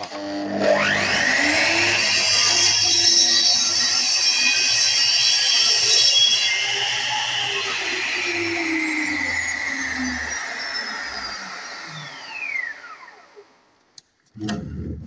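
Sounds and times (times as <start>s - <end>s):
saw motor whine spinning down: 0.0s - 13.8s
click: 13.8s - 14.6s.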